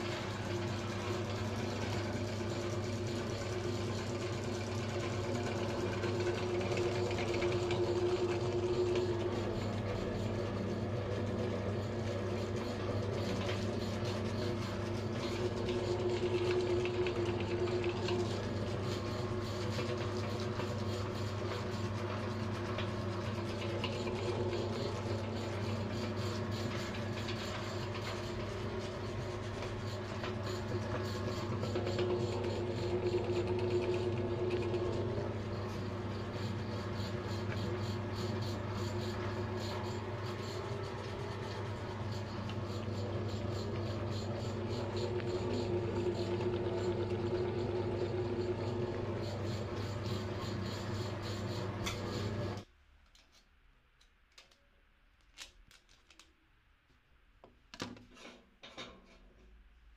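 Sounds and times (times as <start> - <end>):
meat grinder motor hum: 0.0 - 52.7.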